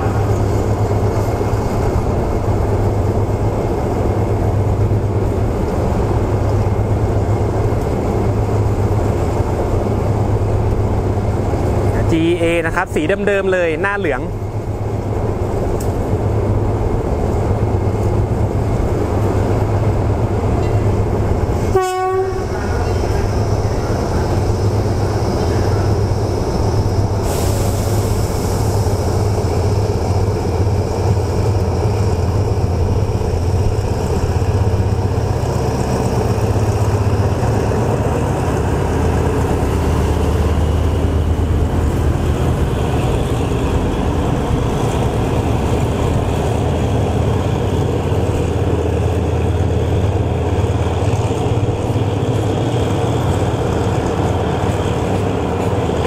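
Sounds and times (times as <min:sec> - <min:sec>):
diesel locomotive running: 0:00.0 - 0:56.0
train horn toot: 0:21.6 - 0:23.0.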